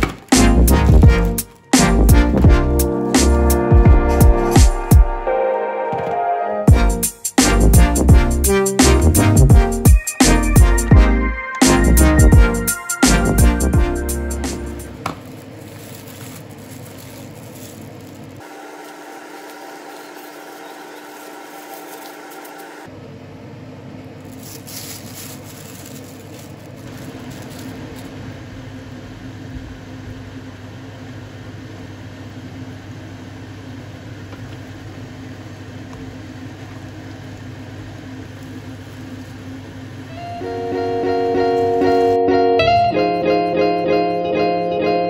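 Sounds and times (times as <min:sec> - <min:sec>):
kitchen appliance humming: 0:13.8 - 0:42.2.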